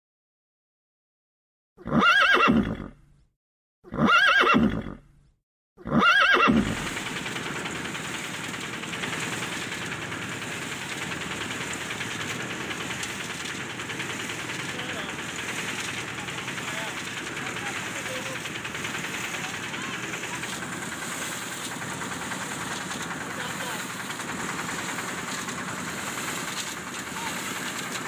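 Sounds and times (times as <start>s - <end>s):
horse whinny: 1.8s - 3.0s, 3.9s - 5.1s, 5.8s - 6.9s.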